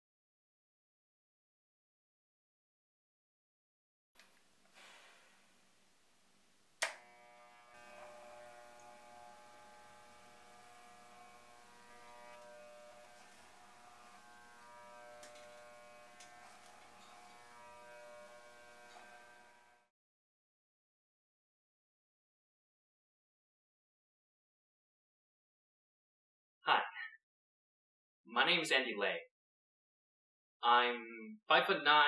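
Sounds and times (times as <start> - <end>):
hair clipper buzzing: 6.6 - 19.9
clipper switch click: 6.8 - 7.0.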